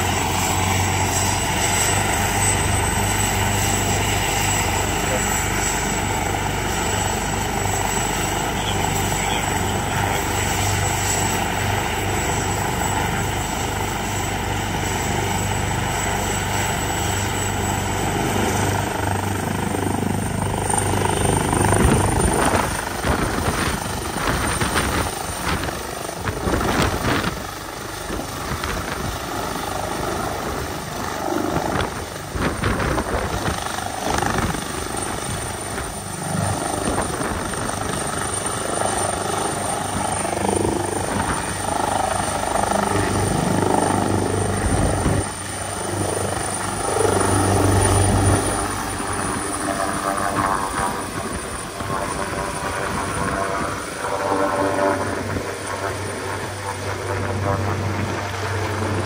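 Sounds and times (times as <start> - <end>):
helicopter turbine whine and rotor: 0.0 - 59.0.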